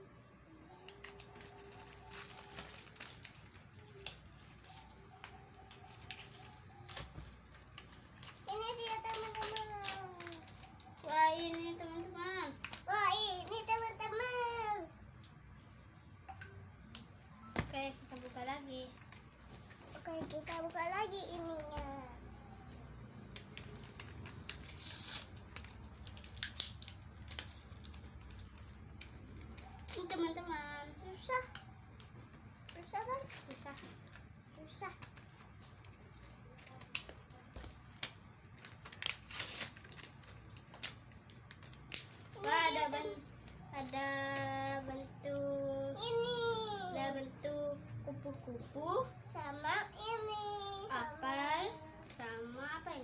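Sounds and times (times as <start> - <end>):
faint background tones: 0.0 - 53.0
scissors cutting plastic: 0.8 - 12.0, 23.3 - 30.4, 36.5 - 42.8
sharp crack of packaging: 0.8 - 13.8, 18.0 - 19.1, 23.3 - 30.4, 36.5 - 42.6
plastic packaging crinkling: 0.8 - 13.9, 17.8 - 21.7, 23.3 - 30.4, 32.7 - 42.8.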